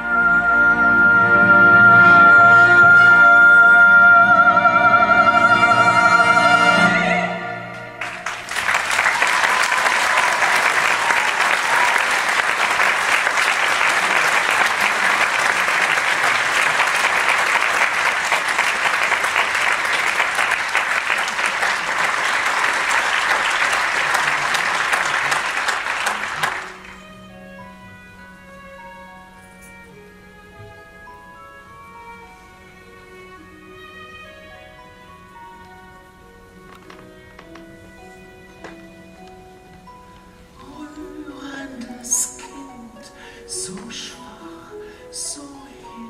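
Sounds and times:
soft orchestral strings: 0.0 - 46.0
theatre orchestra: 0.0 - 46.0
audience applause: 8.0 - 27.1.

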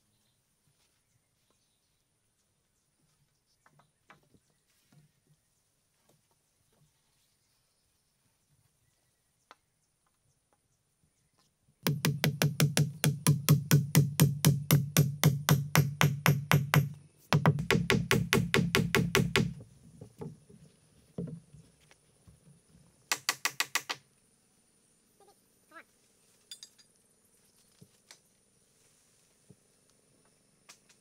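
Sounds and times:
rapid knocking: 11.9 - 19.6.

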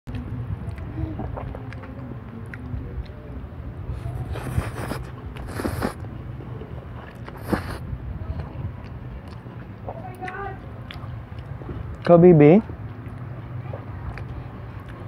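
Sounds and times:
steady low rumble: 0.1 - 15.0
man slurping noodles: 4.0 - 6.0, 7.2 - 7.8.

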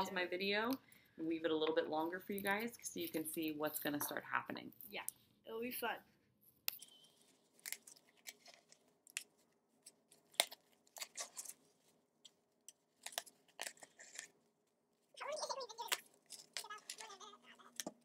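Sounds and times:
yarn and cardboard clicks and scratches: 6.7 - 14.4, 15.2 - 18.0.

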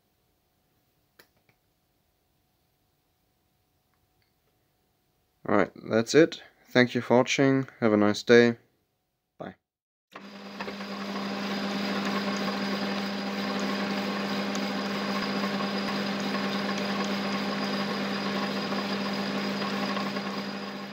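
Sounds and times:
file scraping spinning metal: 10.2 - 20.9
metal lathe humming: 10.2 - 20.9.

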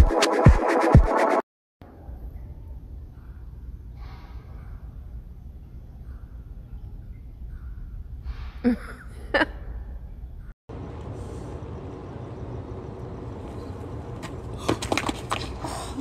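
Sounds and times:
roller-skate wheels on asphalt: 13.2 - 16.0.

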